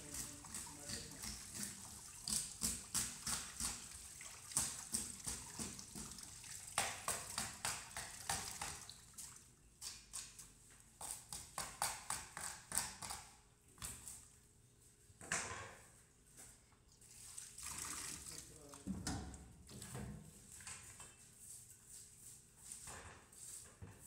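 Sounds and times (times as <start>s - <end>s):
tap water running into sink: 0.0s - 9.2s.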